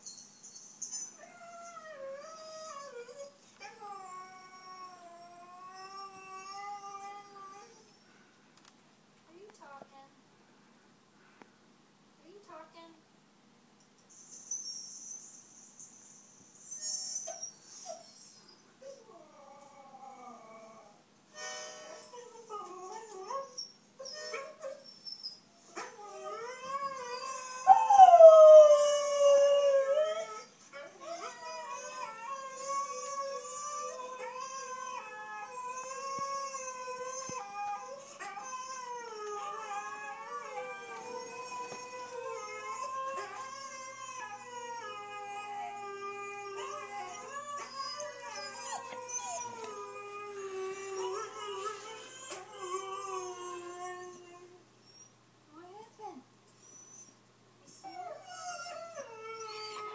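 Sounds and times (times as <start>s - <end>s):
dog howling: 26.0s - 54.2s.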